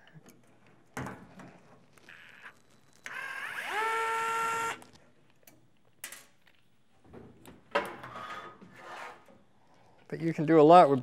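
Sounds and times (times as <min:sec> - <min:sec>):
screw squealing: 0:02.0 - 0:04.9.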